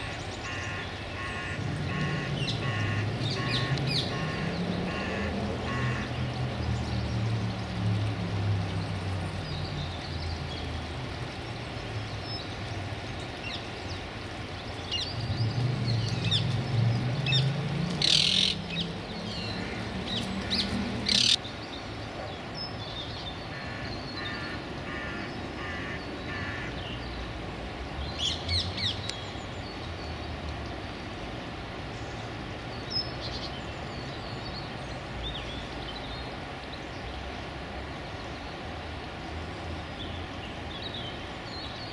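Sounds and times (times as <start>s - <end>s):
wild birds calling: 0.0s - 6.9s, 11.6s - 27.3s.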